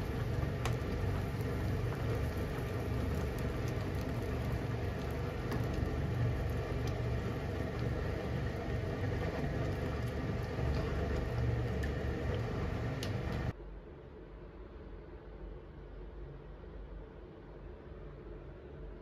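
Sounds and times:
curry simmering in a frying pan: 0.0 - 13.5.

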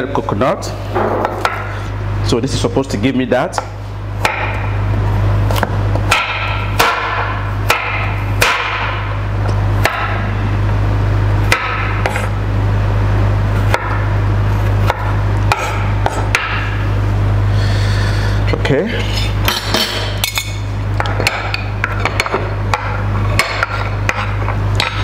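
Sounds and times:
steady low hum: 0.0 - 25.0
knife chopping on wooden board: 14.8 - 16.6.

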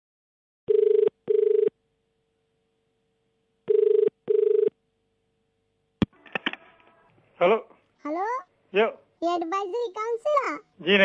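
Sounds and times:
telephone ringback tone: 0.7 - 1.7, 3.7 - 4.7.

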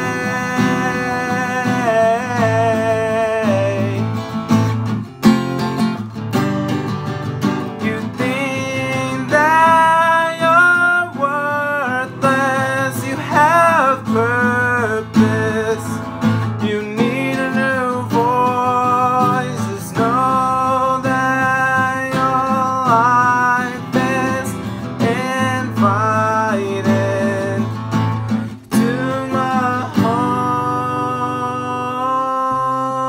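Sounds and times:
man singing: 0.0 - 4.8, 7.6 - 33.0
strummed acoustic guitar: 0.0 - 33.0.

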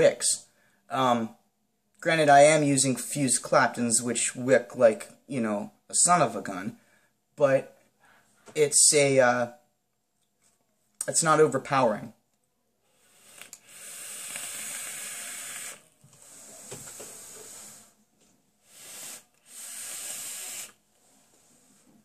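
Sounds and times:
breathy exhale: 12.9 - 18.0, 18.6 - 22.0
vape draw hissing: 13.0 - 18.0, 18.6 - 20.8.

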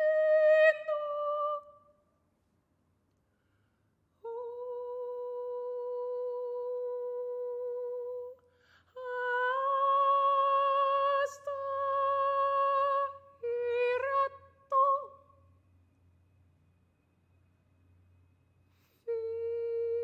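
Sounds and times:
woman singing with vibrato: 0.0 - 1.9, 4.2 - 15.3, 19.1 - 20.0
woman humming: 19.1 - 20.0.

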